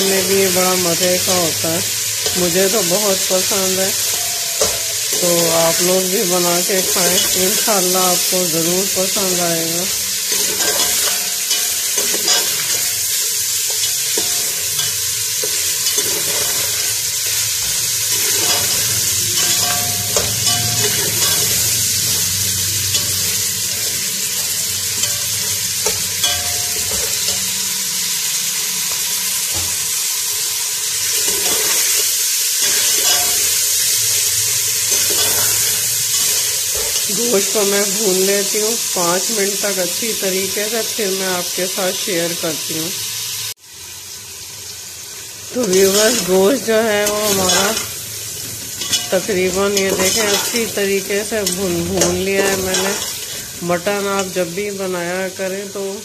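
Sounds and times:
meat and onions sizzling in oil: 0:00.0 - 0:56.0
metal spatula scraping pot: 0:02.2 - 0:06.0, 0:08.9 - 0:27.7, 0:31.0 - 0:37.6, 0:45.6 - 0:54.4.

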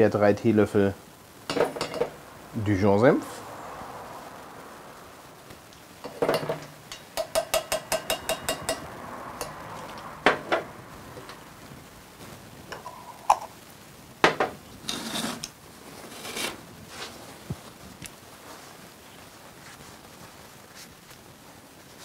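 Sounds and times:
spoon tapping on steel cup: 0:06.1 - 0:09.6
paper towel rustling: 0:15.3 - 0:22.0.

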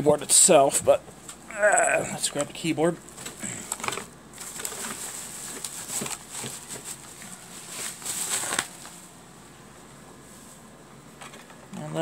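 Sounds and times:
plastic packaging crinkling: 0:03.1 - 0:09.1.

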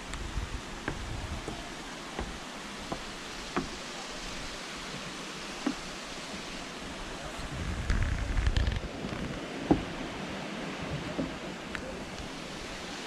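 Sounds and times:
wind buffeting microphone: 0:00.0 - 0:03.0, 0:07.2 - 0:12.5
rushing water: 0:00.0 - 0:13.0.

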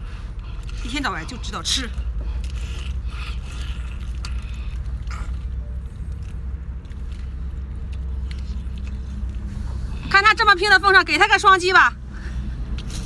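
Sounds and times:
biting and sucking clam meat: 0:00.0 - 0:10.1
low rumble: 0:00.0 - 0:13.0.

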